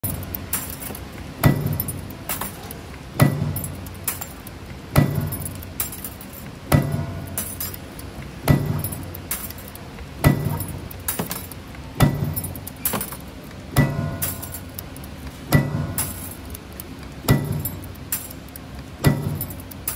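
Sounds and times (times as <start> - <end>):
machine metallic strike: 0.0 - 2.6, 3.2 - 7.9, 8.5 - 9.6, 10.2 - 13.2, 15.5 - 16.5, 17.3 - 18.4, 19.0 - 19.9
light metallic clinking: 17.3 - 19.9.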